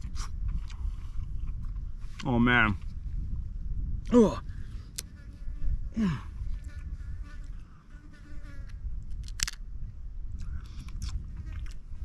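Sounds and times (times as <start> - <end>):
wind rumble on microphone: 0.0 - 12.0
crab shell cracking: 9.2 - 9.6.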